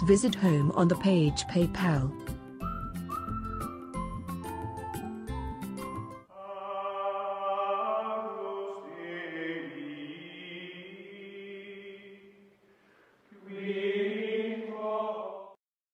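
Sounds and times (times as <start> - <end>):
choir chanting held notes: 6.3 - 12.5, 13.3 - 15.6.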